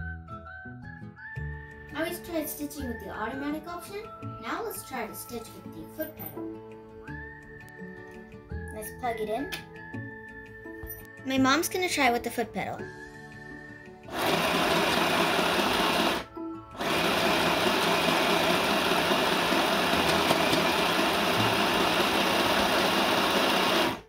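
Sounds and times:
sewing machine stitching: 14.1 - 16.2, 16.8 - 24.0.

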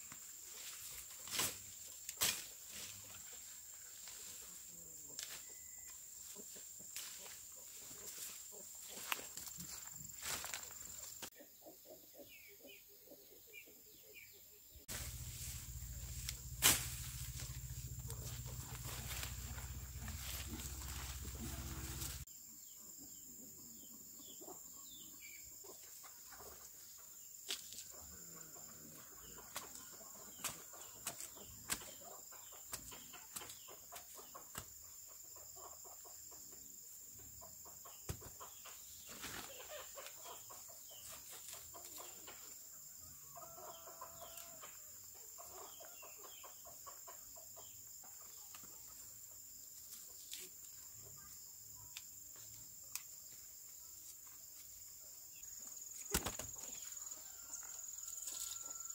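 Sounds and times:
chickens clucking: 0.5 - 22.2, 23.0 - 53.1, 53.8 - 58.9
high insect drone: 14.9 - 22.3.

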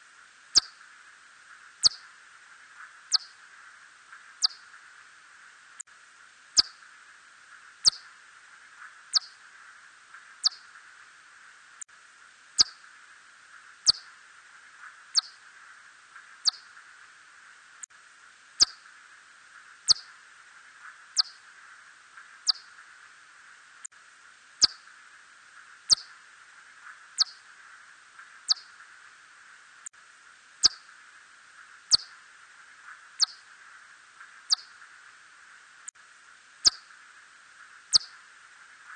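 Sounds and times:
steady hiss: 0.0 - 38.9
bat echolocation chirps: 0.5 - 0.8, 1.8 - 2.2, 3.1 - 3.4, 4.4 - 4.7, 6.6 - 6.8, 7.8 - 8.1, 9.1 - 9.4, 10.4 - 10.8, 12.6 - 12.8, 13.8 - 14.2, 15.1 - 15.4, 16.4 - 16.8, 18.6 - 18.8, 19.8 - 20.2, 21.1 - 21.4, 22.4 - 22.9, 24.6 - 24.9, 25.8 - 26.2, 27.1 - 27.5, 28.4 - 28.9, 30.6 - 30.9, 31.9 - 32.2, 33.1 - 33.5, 34.3 - 34.9, 36.6 - 36.9, 37.9 - 38.3.

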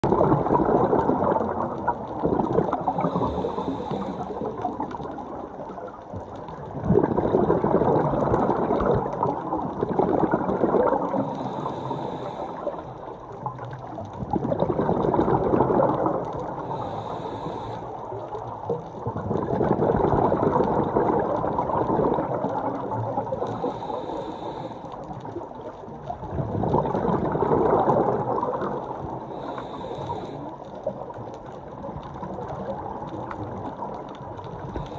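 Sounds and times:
exhaled bubbles rushing: 0.0 - 11.7, 12.5 - 16.9, 18.0 - 23.7, 25.2 - 29.6
regulator hissing inhale: 2.9 - 4.6, 11.2 - 13.1, 16.6 - 18.1, 23.4 - 25.1, 29.3 - 30.6.

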